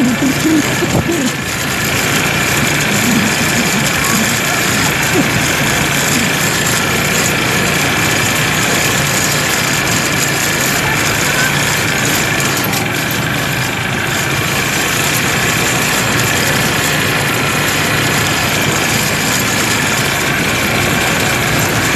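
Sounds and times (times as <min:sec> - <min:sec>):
steady rushing noise: 0:00.0 - 0:10.9
quad bike engines running: 0:00.0 - 0:21.9.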